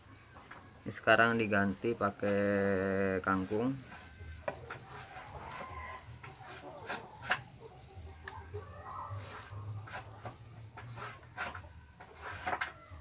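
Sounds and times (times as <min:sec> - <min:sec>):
crickets chirping: 0:00.0 - 0:08.3, 0:08.9 - 0:09.8, 0:12.2 - 0:13.0.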